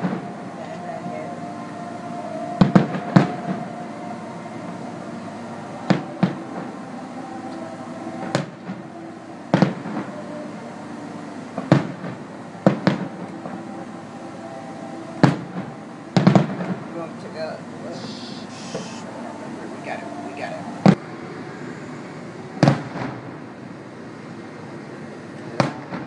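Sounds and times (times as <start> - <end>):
distant fireworks bangs: 0.0 - 6.8, 7.5 - 10.5, 11.4 - 13.8, 15.2 - 17.2, 17.9 - 19.0, 22.6 - 23.4, 25.5 - 26.0
steady background noise: 0.0 - 26.0.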